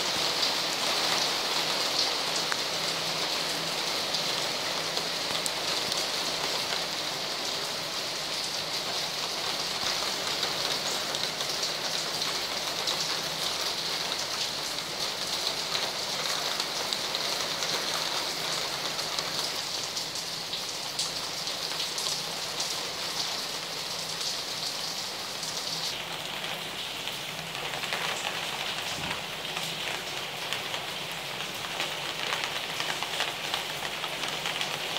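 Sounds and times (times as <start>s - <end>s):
heavy rain on street: 0.0s - 34.9s.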